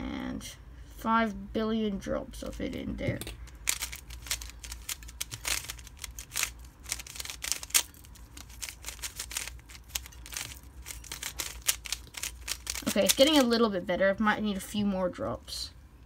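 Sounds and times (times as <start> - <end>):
plastic puzzle cube clicking: 3.5 - 13.5.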